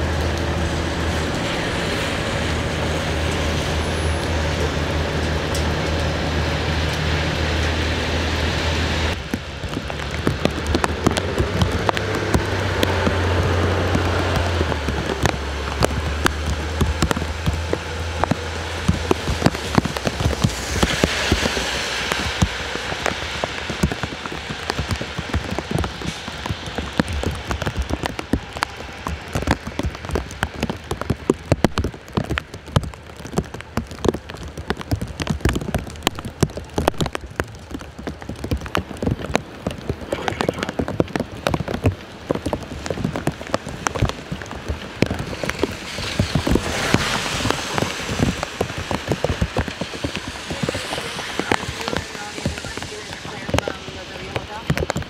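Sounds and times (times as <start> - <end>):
bus engine rumble: 0.0 - 34.6, 35.2 - 55.0
rain falling on street: 0.0 - 55.0
tyre hiss on wet road: 19.7 - 25.4, 45.2 - 54.7.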